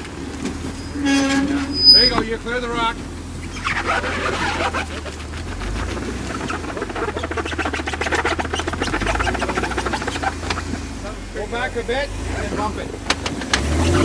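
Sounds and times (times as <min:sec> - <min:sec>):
low engine rumble: 0:00.0 - 0:14.0
snow and debris crunching: 0:03.6 - 0:11.7.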